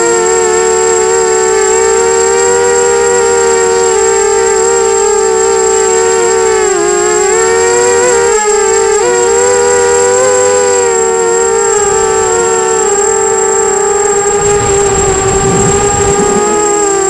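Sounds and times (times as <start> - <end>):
drone propellers whining: 7.1 - 17.0.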